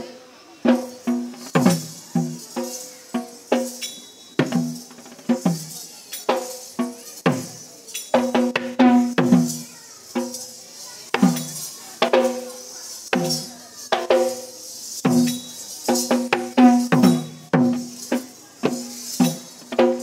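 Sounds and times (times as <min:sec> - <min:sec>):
high jingling: 0:00.7 - 0:20.0
hand drum beating: 0:13.1 - 0:20.0.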